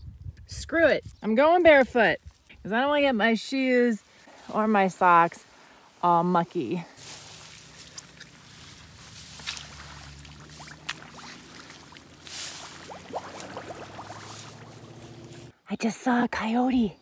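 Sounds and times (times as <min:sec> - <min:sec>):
feet splashing through mud: 0:07.0 - 0:15.5
low hum: 0:07.0 - 0:15.5
water dripping: 0:07.0 - 0:15.5.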